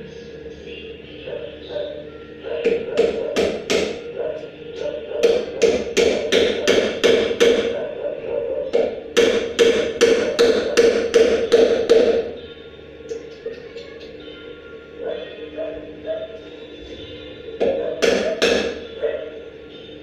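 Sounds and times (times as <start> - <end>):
hammer knocking on wood: 2.6 - 4.0, 5.2 - 7.7, 8.7 - 12.2, 17.6 - 18.8.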